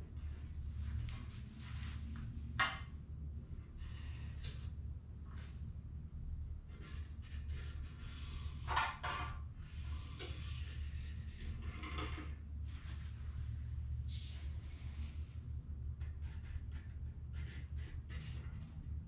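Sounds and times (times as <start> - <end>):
low hum: 0.0 - 8.7, 9.4 - 19.0
marker pen scratching on foam board: 16.0 - 18.8.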